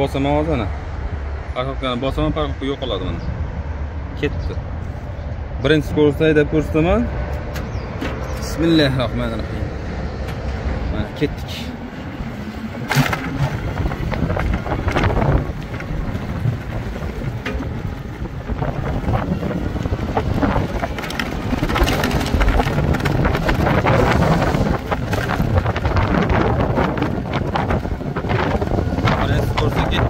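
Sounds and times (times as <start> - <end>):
wind buffeting microphone: 0.0 - 30.0
tricycle rolling noise: 12.2 - 30.0.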